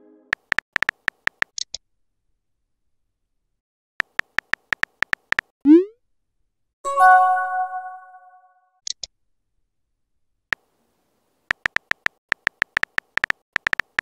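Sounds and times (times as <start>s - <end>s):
phone keyboard tap clicks: 0.4s - 1.6s, 4.0s - 5.5s, 11.5s - 14.0s.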